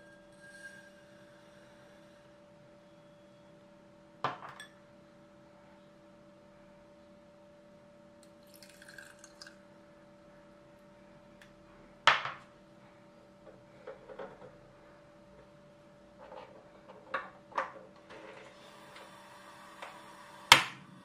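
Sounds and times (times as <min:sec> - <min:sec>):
faint steady hum: 0:00.0 - 0:21.0
water trickling into saucepan: 0:08.3 - 0:09.6.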